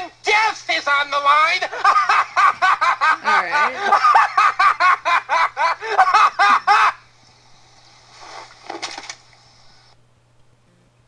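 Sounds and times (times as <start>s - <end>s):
person laughing: 1.7s - 7.0s.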